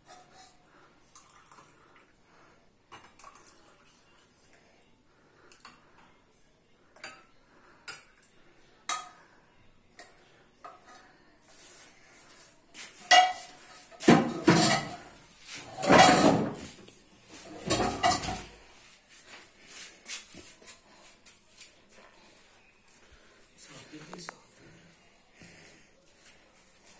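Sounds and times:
scraping and thudding: 14.0s - 16.8s.

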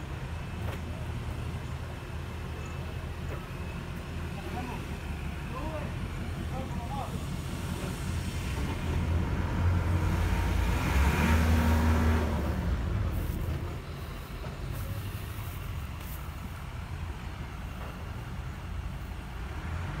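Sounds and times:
crane engine revving: 8.1s - 15.9s.

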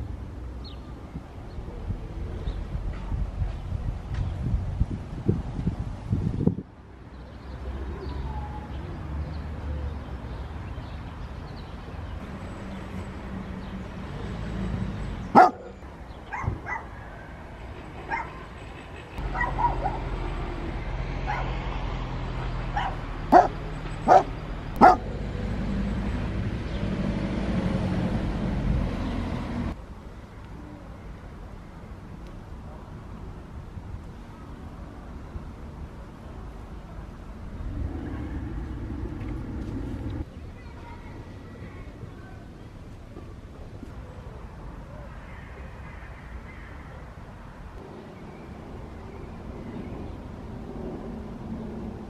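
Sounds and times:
dog yelping: 15.4s - 16.9s, 19.3s - 20.0s, 22.8s - 25.0s
dog barking: 15.4s - 17.0s, 18.1s - 18.4s, 19.3s - 20.0s, 21.3s - 21.5s, 22.8s - 25.1s
low background rumble: 37.1s - 40.3s.

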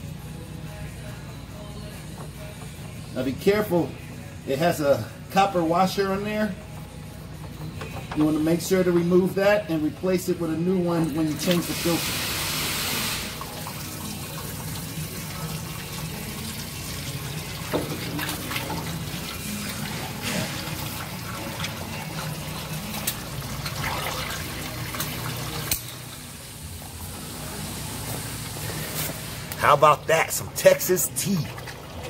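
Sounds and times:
oil pouring into drain pan: 11.3s - 26.2s.

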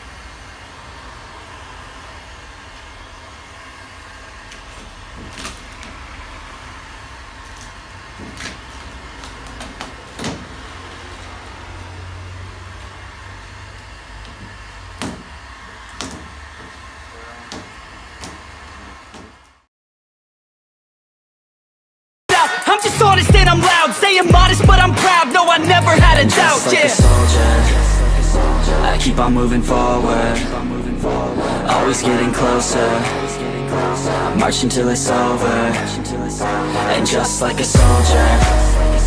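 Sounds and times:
heat gun blowing: 0.0s - 19.6s
low hum: 27.0s - 39.0s.

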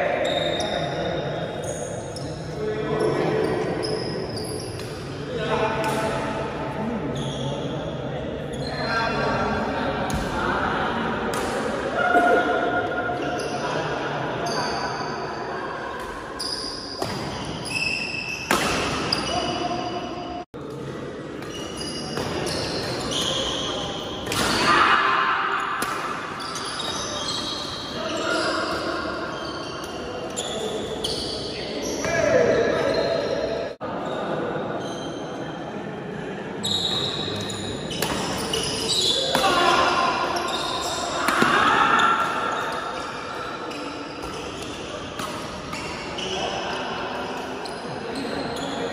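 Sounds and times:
shoes squeaking on court floor: 0.2s - 5.0s, 16.0s - 20.3s, 21.4s - 24.6s, 26.2s - 34.2s, 36.6s - 48.9s.

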